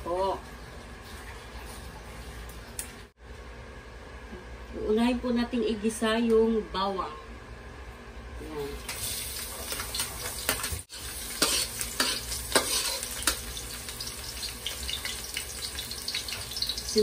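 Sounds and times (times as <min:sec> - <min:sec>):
garlic sizzling in oil: 0:08.6 - 0:17.0
metal spatula scraping wok: 0:10.9 - 0:13.4.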